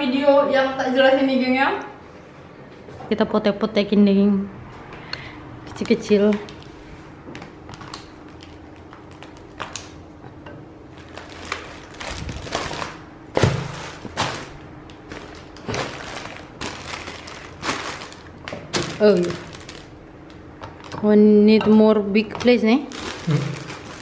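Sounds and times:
foil rustling: 7.7s - 10.0s, 10.9s - 20.9s, 22.6s - 24.0s.

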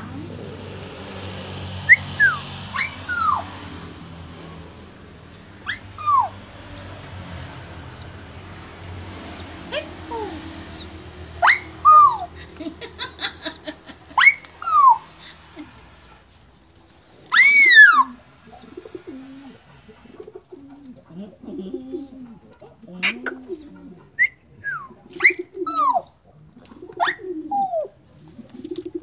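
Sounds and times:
bird whistled calls: 5.6s - 6.4s.

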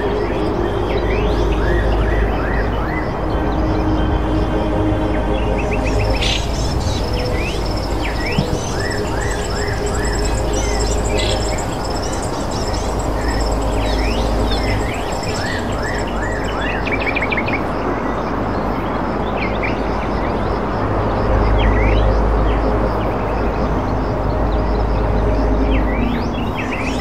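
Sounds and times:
birds chirping: 0.0s - 17.6s
low hum: 0.0s - 17.6s.

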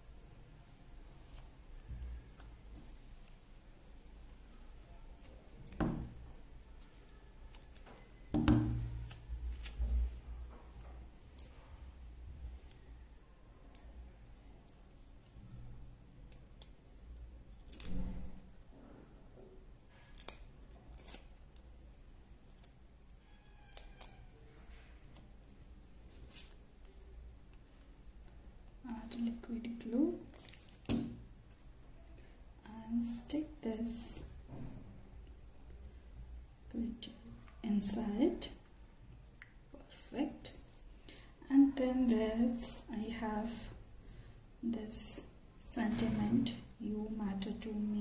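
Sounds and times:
paper rustling: 8.8s - 10.4s, 26.0s - 27.0s.

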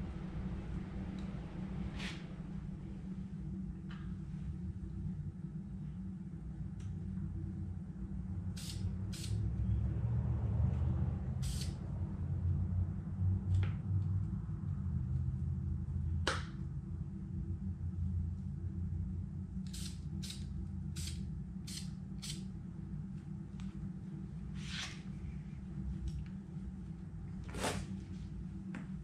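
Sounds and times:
steady low hum: 0.0s - 29.0s
spray-paint can hissing: 11.4s - 11.8s.

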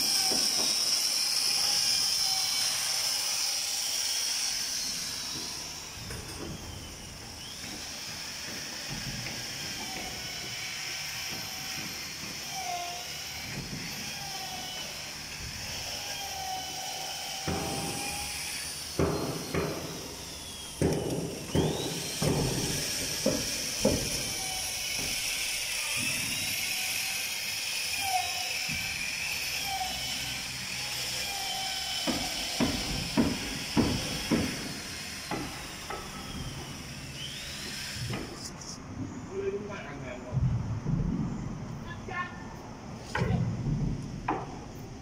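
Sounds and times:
hammer striking wooden hull: 18.9s - 25.2s, 32.0s - 36.7s.

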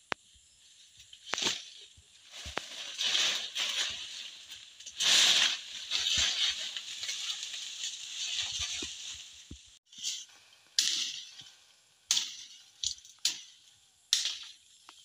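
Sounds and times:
tree branches rustling: 0.6s - 10.3s.

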